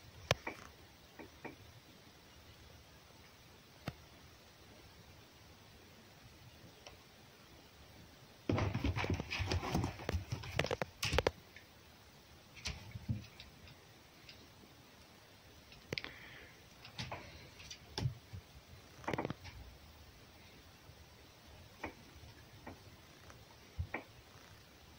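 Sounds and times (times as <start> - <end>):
animals scuffling on wooden box: 8.5 - 10.9
thumps: 8.5 - 11.4.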